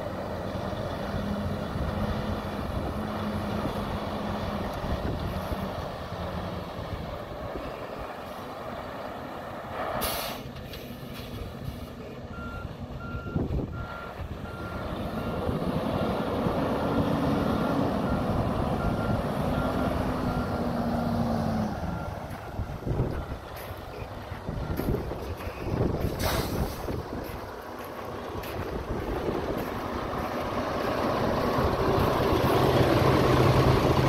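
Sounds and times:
truck diesel engine running: 0:00.0 - 0:09.8, 0:10.5 - 0:34.0
air brake hiss: 0:10.0 - 0:10.9, 0:26.1 - 0:27.0.

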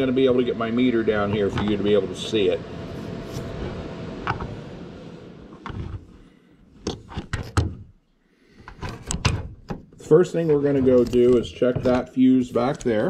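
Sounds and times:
sharp clicks and knocks: 0:08.6 - 0:10.0.

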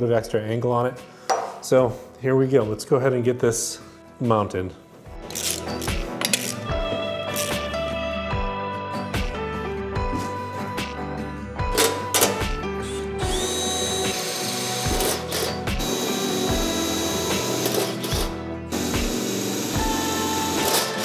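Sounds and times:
background music with beat: 0:04.8 - 0:21.0
power drill whining: 0:12.8 - 0:21.0.

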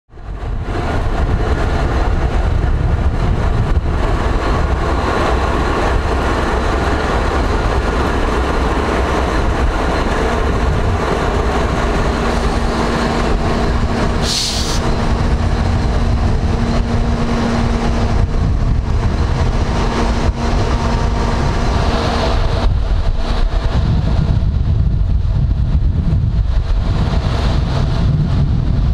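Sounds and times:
diesel locomotive idling: 0:00.2 - 0:27.8
steady hum: 0:02.6 - 0:26.5
short hiss: 0:14.2 - 0:14.8.

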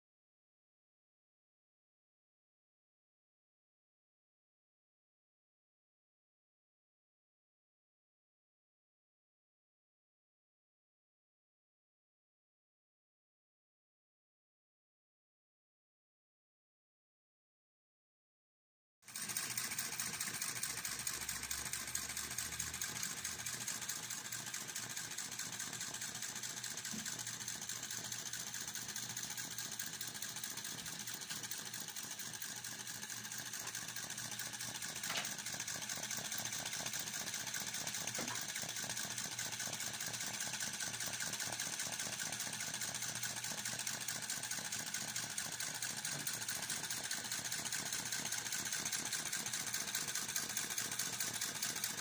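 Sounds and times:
model engine running: 0:19.1 - 0:52.0.

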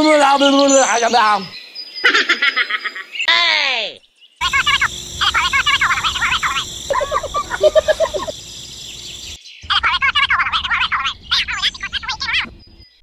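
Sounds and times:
squeaky cartoon gibberish voices: 0:04.4 - 0:08.5, 0:09.7 - 0:12.5.

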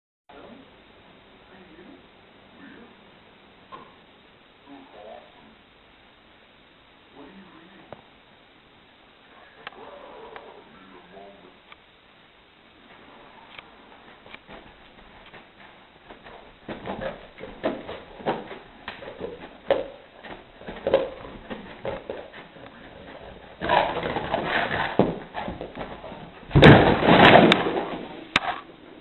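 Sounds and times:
soft muffled dog noises: 0:09.3 - 0:11.6
dog paws scrabbling on carpet: 0:13.9 - 0:26.6
wooden boards clattering: 0:23.6 - 0:28.6.

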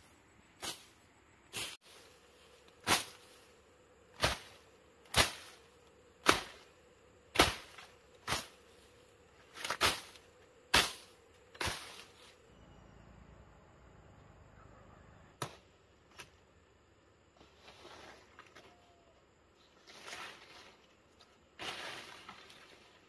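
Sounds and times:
blade slashing through brush: 0:02.8 - 0:03.4, 0:04.2 - 0:05.6, 0:06.2 - 0:06.7, 0:07.3 - 0:08.6, 0:09.5 - 0:12.3.

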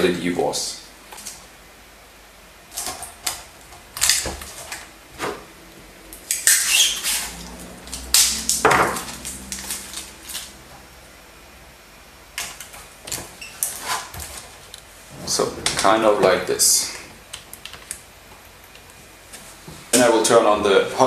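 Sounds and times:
tape ripping off roll: 0:06.2 - 0:10.6
tape rubbing on panel: 0:06.4 - 0:07.5, 0:13.6 - 0:15.7.

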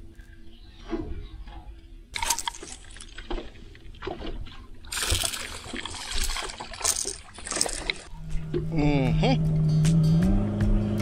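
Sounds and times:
fish splashing: 0:02.2 - 0:08.1
water lapping against boat hull: 0:02.6 - 0:08.8.

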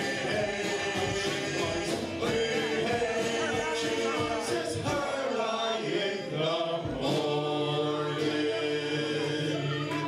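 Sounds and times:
live band holding a chord: 0:00.0 - 0:10.0
voices singing together: 0:00.0 - 0:10.0.

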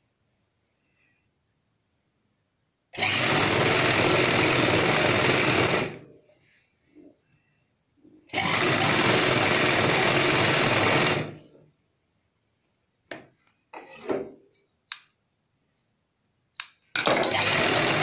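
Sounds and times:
sewing machine stitching: 0:03.0 - 0:06.1, 0:08.3 - 0:11.4, 0:17.1 - 0:18.0.

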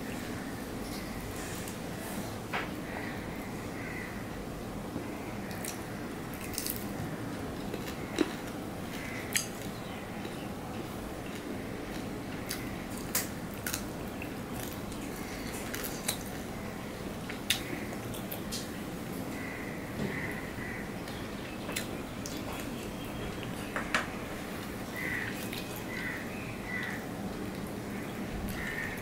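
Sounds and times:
steady background hiss: 0:00.0 - 0:29.0
wet chewing of food: 0:05.5 - 0:16.6, 0:21.0 - 0:23.7, 0:24.3 - 0:27.8.

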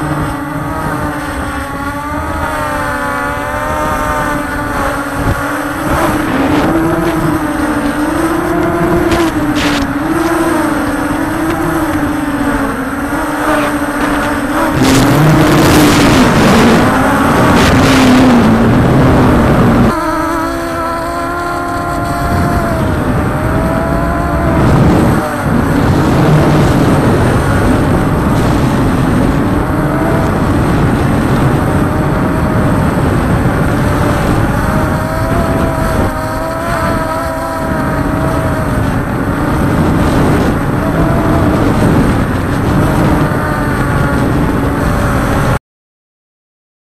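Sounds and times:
drone propellers whining: 0:00.0 - 0:45.6
steady rushing noise: 0:00.0 - 0:45.6.

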